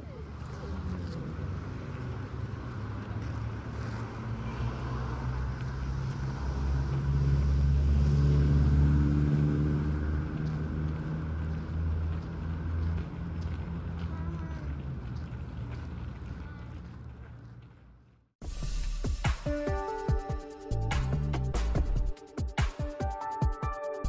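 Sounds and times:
low traffic rumble: 0.0s - 18.4s
vehicle engine passing: 0.1s - 16.4s.

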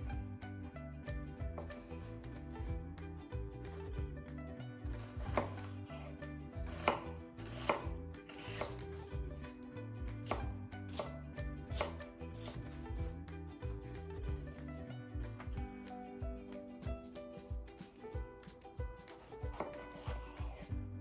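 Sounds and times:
knife slicing onion: 4.8s - 9.5s, 10.1s - 13.2s, 19.0s - 20.8s.

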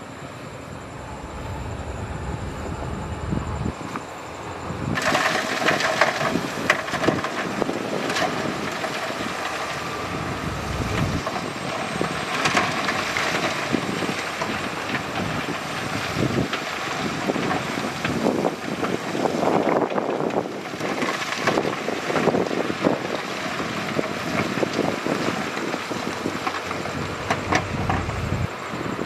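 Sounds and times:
heavy machine noise: 0.0s - 29.0s
rock crunching and clattering: 4.9s - 28.2s.

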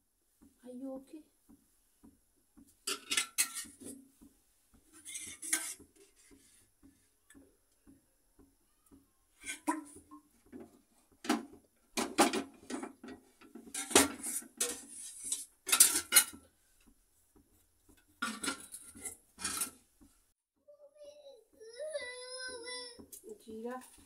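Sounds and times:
steel utensils clinking: 2.9s - 3.9s, 5.0s - 5.8s, 13.7s - 16.4s.

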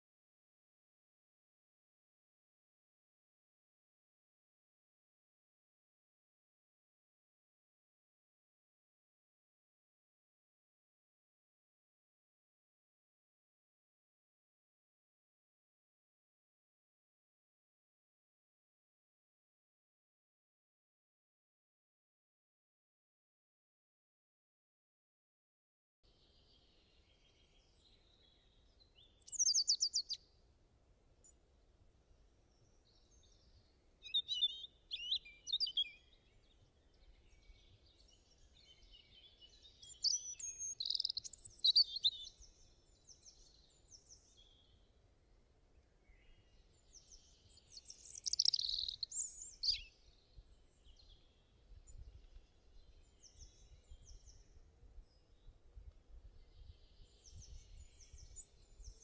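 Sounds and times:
birds chirping and singing: 26.5s - 30.2s, 32.9s - 44.7s, 46.0s - 55.5s, 56.3s - 59.0s.

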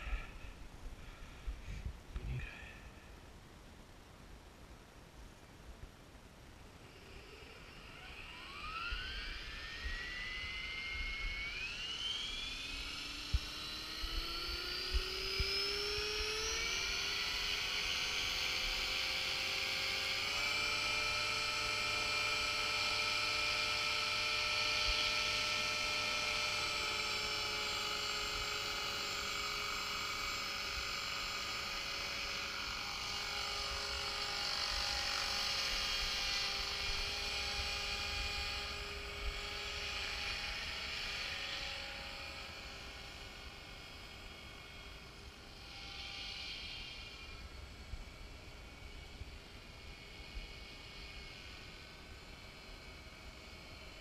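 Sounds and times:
helicopter motor and rotor whine: 0.0s - 3.1s, 6.8s - 54.0s.

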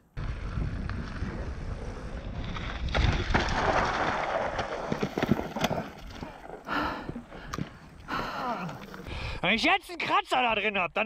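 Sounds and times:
wind rushing over camera: 0.0s - 8.1s
bike tyres rolling on gravel: 0.0s - 9.3s
bike crash sliding through gravel: 0.4s - 6.0s.

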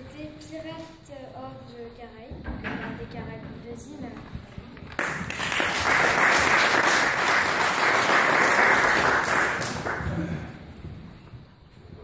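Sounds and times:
audience applauding: 4.8s - 10.6s.

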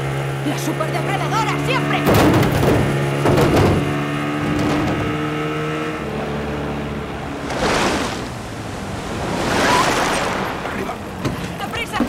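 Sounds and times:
wind: 0.0s - 12.0s
heavy rain: 7.0s - 12.0s.

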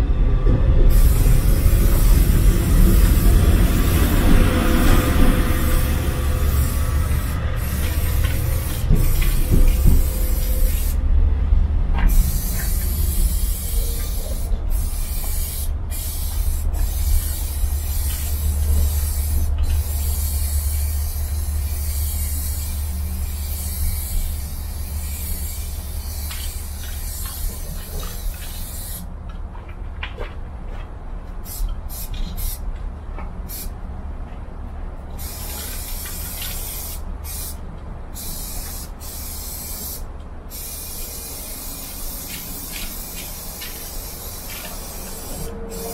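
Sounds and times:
low rumble: 0.0s - 26.9s
spray paint can hissing: 0.9s - 11.0s, 12.0s - 29.1s, 31.4s - 32.6s, 33.5s - 33.7s, 35.1s - 45.9s.

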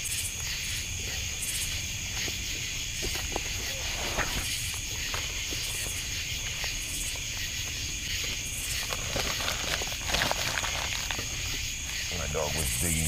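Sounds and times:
night insects chirring: 0.0s - 13.0s
rustles and snaps: 8.6s - 12.0s.

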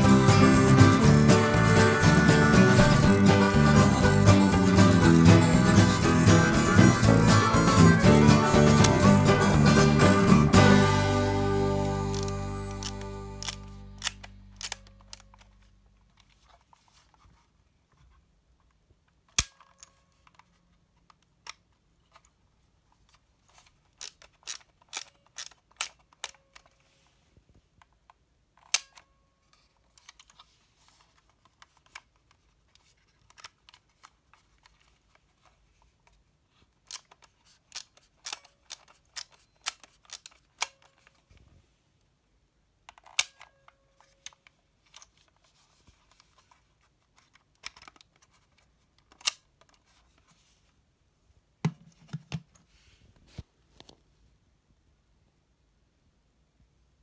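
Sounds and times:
film advance ratcheting clicks: 12.1s - 15.3s.

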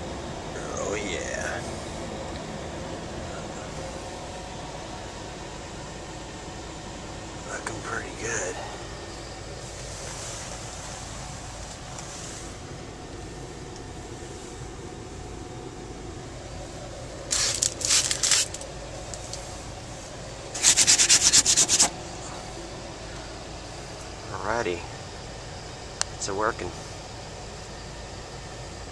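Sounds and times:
gas furnace humming: 0.0s - 28.9s
scraping rubs near microphone: 9.7s - 11.1s, 17.3s - 18.6s, 20.5s - 22.0s.

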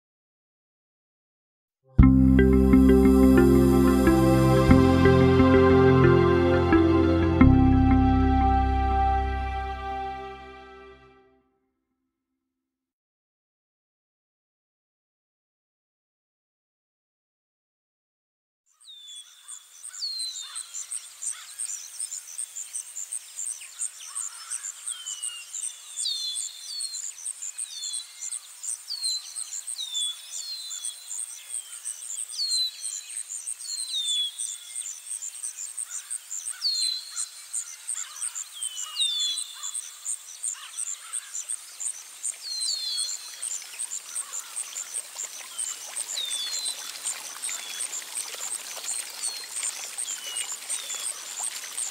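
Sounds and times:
running water rushing: 2.4s - 10.7s, 41.8s - 51.9s
birds chirping: 35.8s - 48.0s
insect trill: 37.2s - 46.9s.

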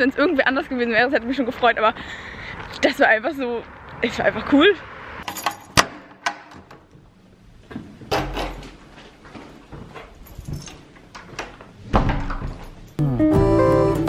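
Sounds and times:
door opening and shutting: 8.1s - 8.8s, 10.3s - 12.9s.

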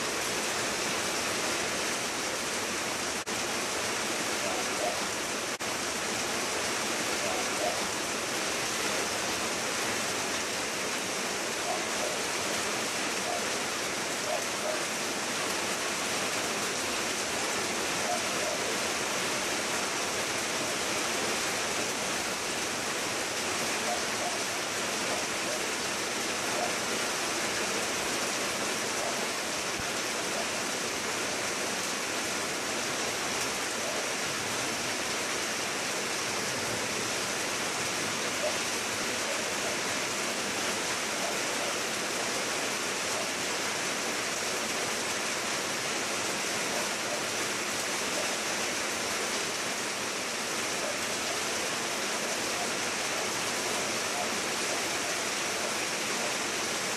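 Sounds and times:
rain falling on leaves: 0.0s - 56.9s.

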